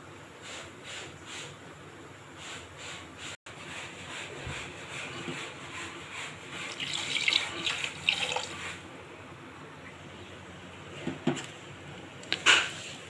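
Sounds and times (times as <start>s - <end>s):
water pouring and splashing into liquid: 6.7s - 8.8s.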